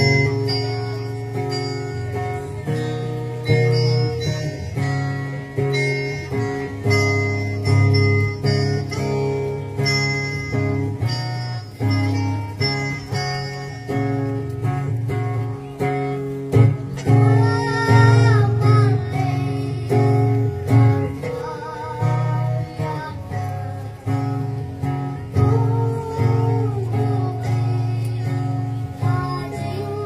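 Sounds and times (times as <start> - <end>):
acoustic guitars strummed: 0.0 - 30.0
child singing: 11.0 - 13.7, 15.6 - 30.0.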